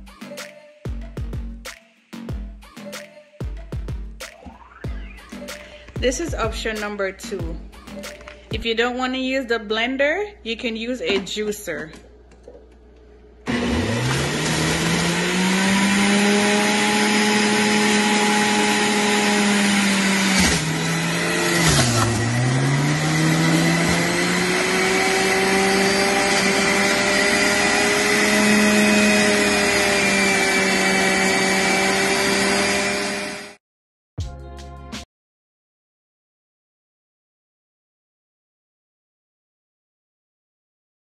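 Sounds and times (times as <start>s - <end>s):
juicer motor whining: 12.1s - 33.6s.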